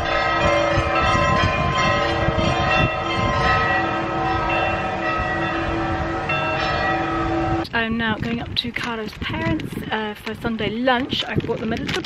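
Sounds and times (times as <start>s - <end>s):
church bells ringing: 0.0s - 7.7s.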